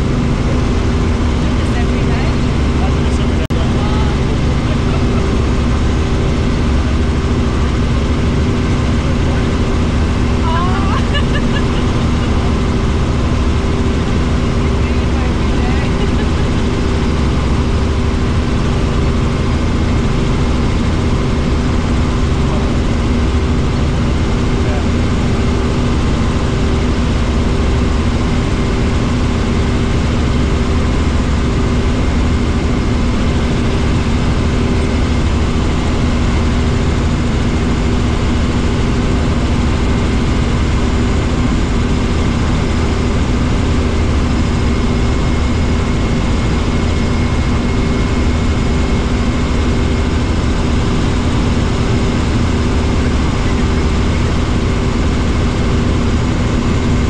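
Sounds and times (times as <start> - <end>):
helicopter cabin drone: 0.0 - 57.0.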